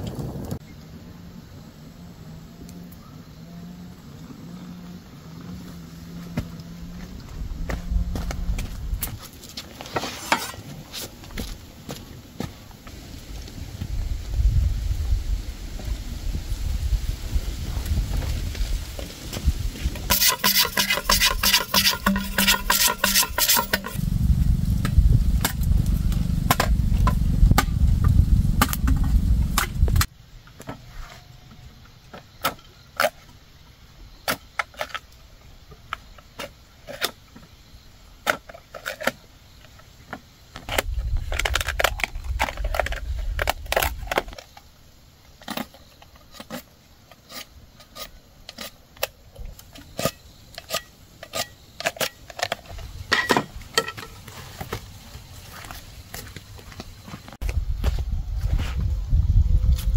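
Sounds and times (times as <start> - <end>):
machete cracking bamboo: 20.1 - 24.0
heavy low rumble: 23.8 - 30.1.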